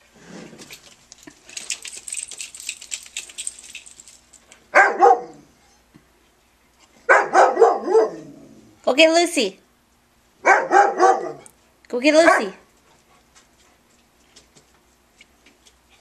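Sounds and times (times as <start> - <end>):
rattling spattering noise: 0.5 - 4.6
dog barking: 4.7 - 5.5, 7.1 - 8.4, 10.4 - 11.5, 12.2 - 12.6.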